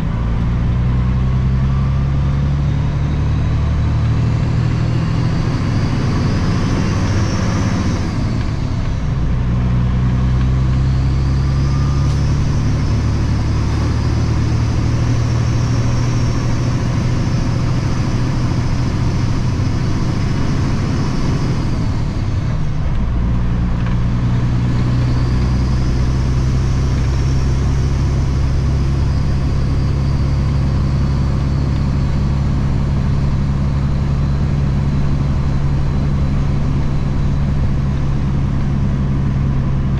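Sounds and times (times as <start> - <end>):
diesel truck engine pulling: 0.0 - 39.9.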